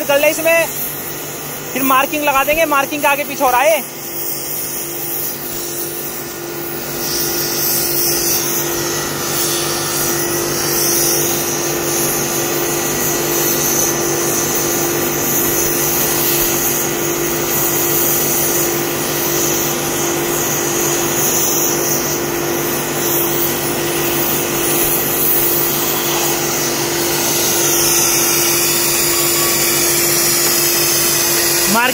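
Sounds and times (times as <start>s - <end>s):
cutting torch hissing: 0.0s - 31.9s.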